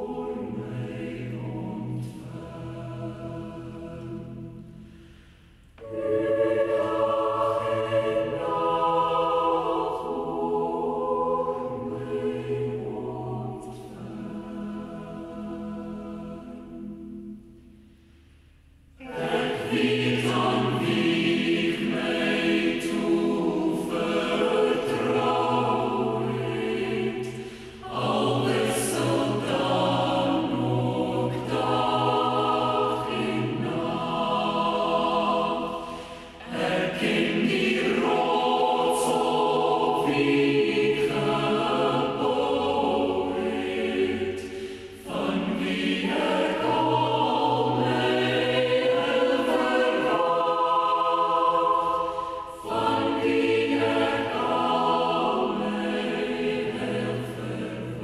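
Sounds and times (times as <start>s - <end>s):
choir singing: 0.0s - 17.9s, 18.9s - 58.0s.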